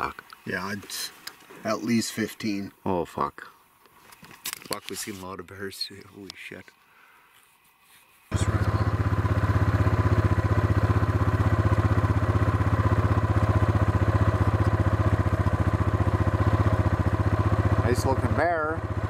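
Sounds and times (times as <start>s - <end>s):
off-road vehicle engine putter: 8.3s - 19.0s.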